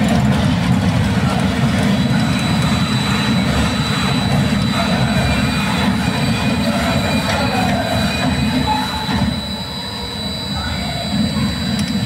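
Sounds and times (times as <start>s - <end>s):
machinery rumble: 0.0s - 12.0s
faint high steady tone: 2.4s - 12.0s.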